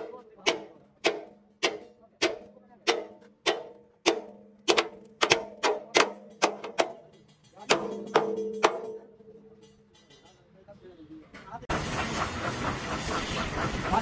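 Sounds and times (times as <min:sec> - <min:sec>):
hammer striking steel sheet: 0:00.0 - 0:10.4.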